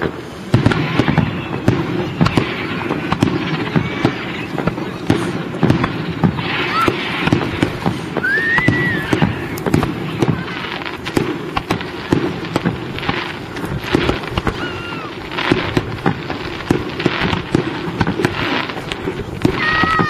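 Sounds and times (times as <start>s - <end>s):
fireworks bangs and crackle: 0.0s - 20.0s
fireworks whistles: 0.0s - 20.0s.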